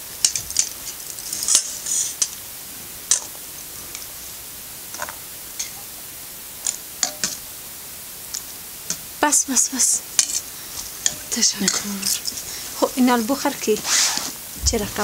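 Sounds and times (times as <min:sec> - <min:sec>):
metal spoon scraping metal bowls: 0:10.2 - 0:12.5.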